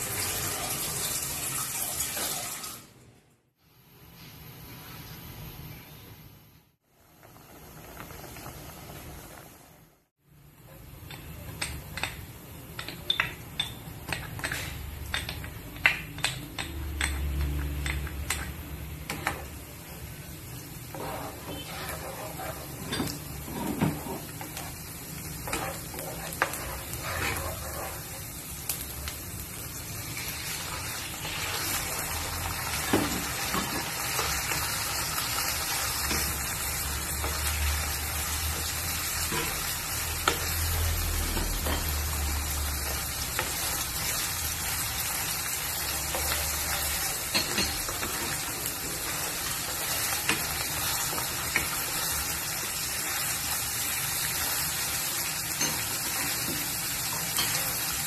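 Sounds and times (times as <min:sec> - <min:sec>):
food sizzling in oil: 0:00.0 - 0:02.9, 0:13.1 - 0:58.0
wooden spatula scraping a pan: 0:20.8 - 0:24.8, 0:25.4 - 0:28.4.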